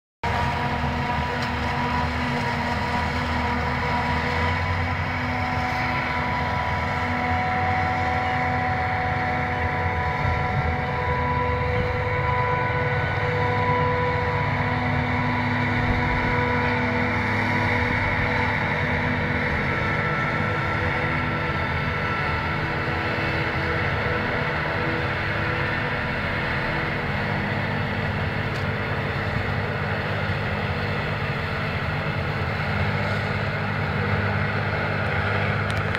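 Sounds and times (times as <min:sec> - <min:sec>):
machine whining tones: 0:00.2 - 0:33.4
forage harvester drone: 0:00.2 - 0:35.9
tractors running: 0:00.2 - 0:35.9.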